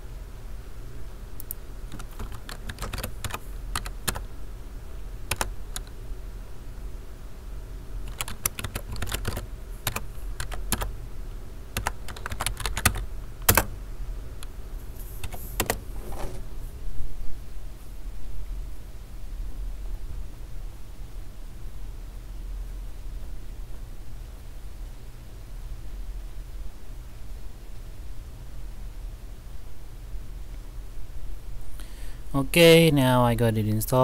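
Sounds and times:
keyboard key clicks: 1.4s - 4.2s, 11.8s - 13.7s.

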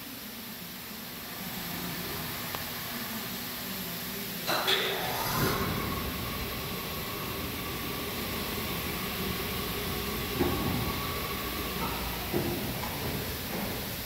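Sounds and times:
motor whine: 4.9s - 14.0s
overhead crane rumbling: 4.9s - 14.0s.

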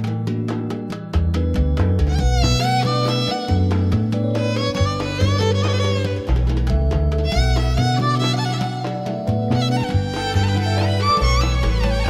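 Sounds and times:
deep bass line: 0.0s - 12.0s
percussive beat: 0.0s - 12.0s
wavering violin melody: 1.9s - 12.0s.

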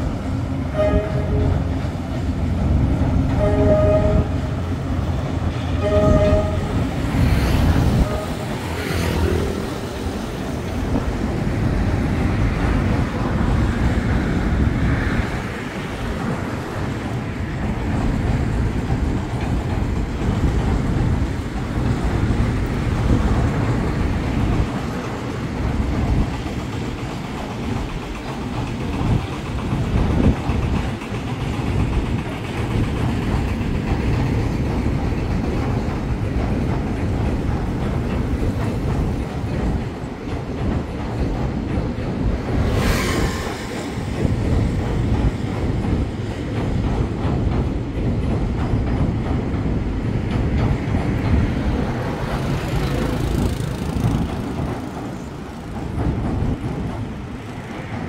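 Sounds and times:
train wagons rolling over bridge: 0.0s - 58.0s
train horn blasts: 0.7s - 1.8s, 3.3s - 4.7s, 5.7s - 7.0s, 8.0s - 9.6s.

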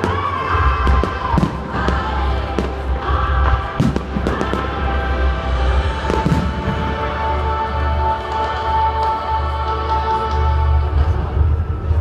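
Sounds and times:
fireworks bursting: 0.0s - 7.4s
background music: 0.0s - 12.0s.

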